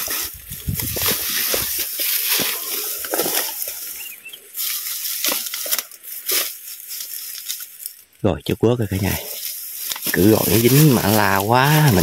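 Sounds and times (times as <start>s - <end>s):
twigs snapping: 0.0s - 8.1s, 9.3s - 12.0s
rustling and crunching of grass: 0.0s - 12.0s
faint high chirp: 3.9s - 4.5s.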